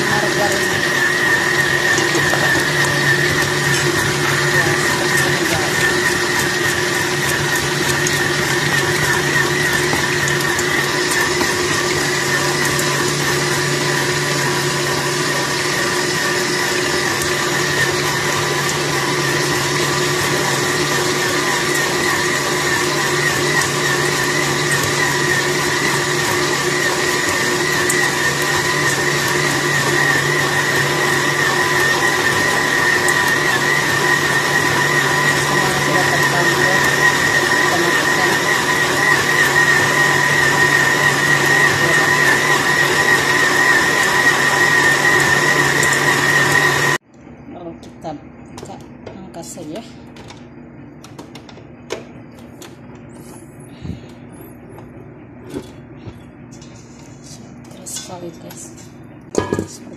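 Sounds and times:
stand mixer motor whining: 0.0 - 47.1.

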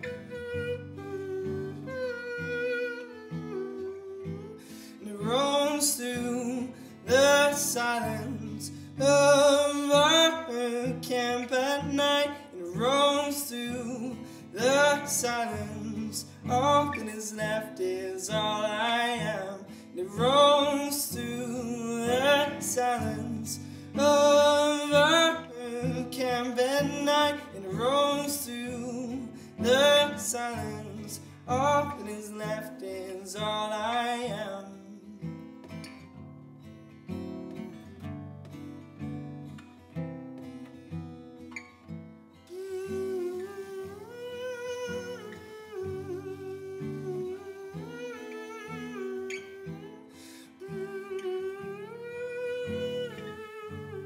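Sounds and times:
man singing wordless melody: 0.0 - 35.6, 42.5 - 54.0
acoustic guitar strumming: 0.0 - 54.0.

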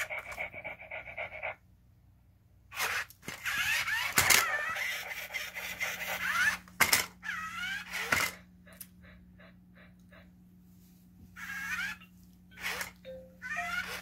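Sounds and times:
toy electronic warbling tones: 11.4 - 14.0.

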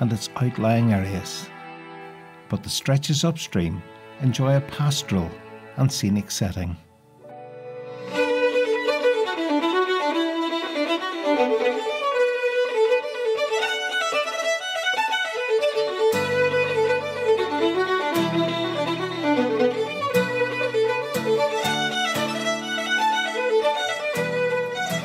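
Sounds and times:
low held accompaniment notes: 0.0 - 12.2
fiddle melody: 0.0 - 25.0.

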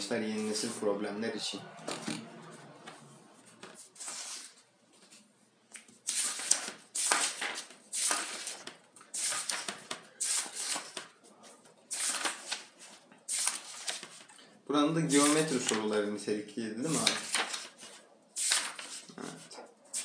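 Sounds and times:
paper pages turning: 2.9 - 14.4, 15.1 - 15.9, 16.9 - 20.0.

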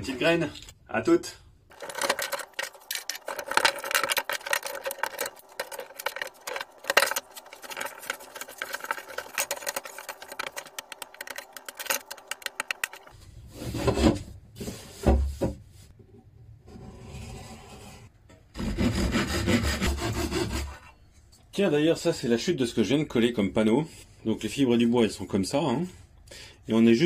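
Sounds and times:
clicking and scraping of hand work: 1.7 - 14.8.

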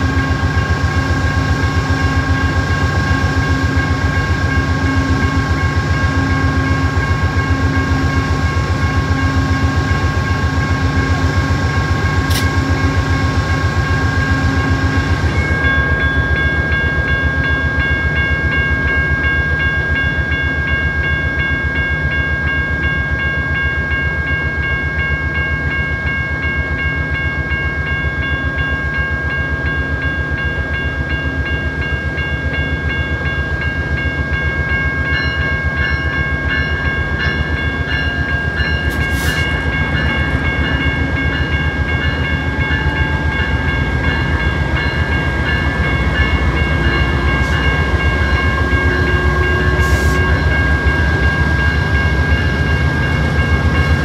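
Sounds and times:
diesel locomotive engine drone: 0.0 - 54.0
air hisses: 38.9 - 39.6.

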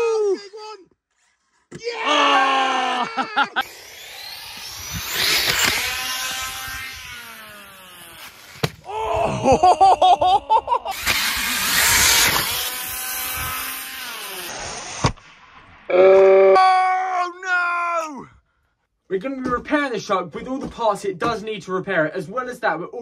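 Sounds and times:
electric motor whining: 3.6 - 8.7, 10.9 - 15.0.

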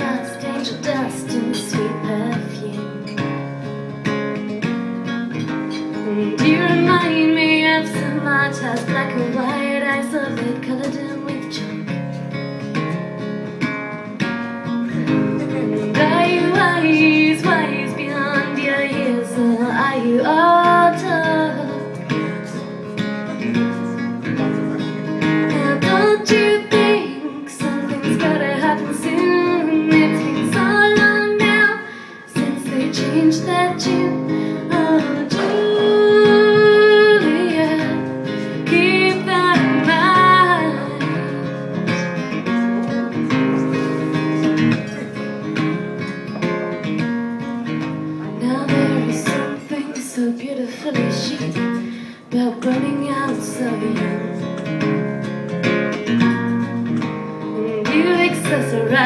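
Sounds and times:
person singing: 0.0 - 3.2, 5.7 - 11.7, 15.2 - 22.6, 23.4 - 45.0, 48.2 - 54.6, 57.4 - 59.0
acoustic guitar strumming: 0.0 - 59.0.

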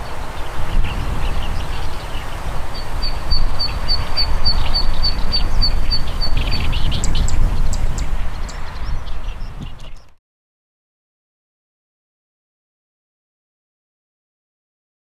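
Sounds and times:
bird high zit notes: 0.0 - 10.1
bird chirps: 0.0 - 10.2.

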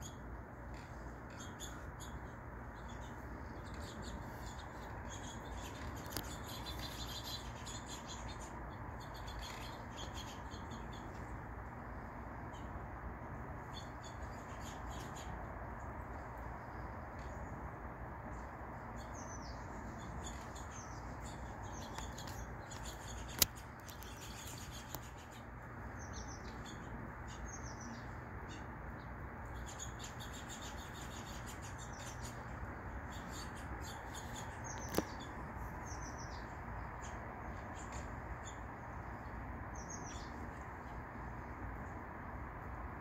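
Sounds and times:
low background hum: 0.0 - 43.0
songbirds chirping: 0.0 - 43.0
sharp clicks: 21.9 - 24.2.

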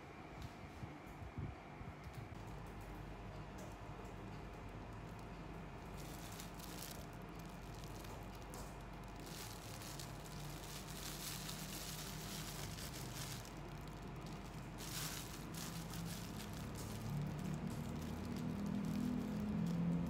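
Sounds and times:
canvas pouch rustling: 5.9 - 8.4, 9.0 - 20.0.

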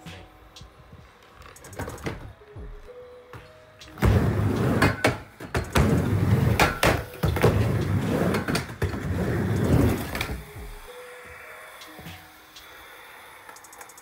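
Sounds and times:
skateboard wheels rumbling: 4.0 - 10.9.

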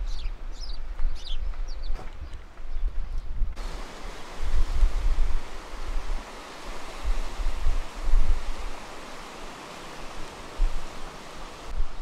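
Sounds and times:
wind buffeting microphone: 0.0 - 12.0
sea surf breaking over rocks: 3.6 - 12.0.

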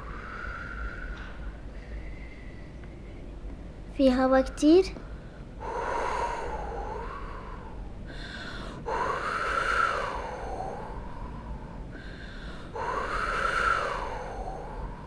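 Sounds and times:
woman blowing whistling whooshes: 8.9 - 11.1, 12.8 - 15.0.

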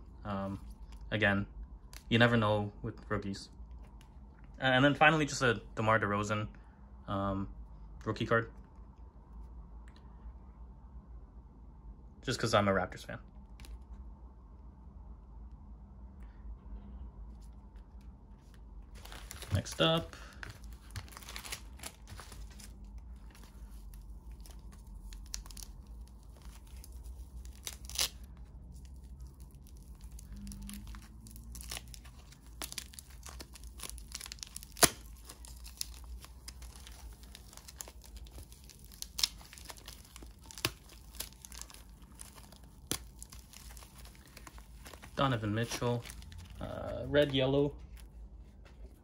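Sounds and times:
low steady hum: 0.0 - 49.0
paper and plastic tearing: 19.0 - 47.5.

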